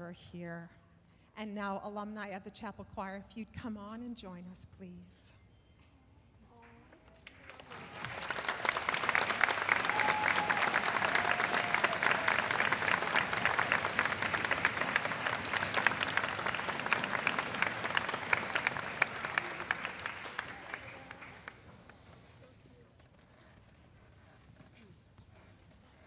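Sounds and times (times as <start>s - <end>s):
audience applauding: 7.2s - 22.2s.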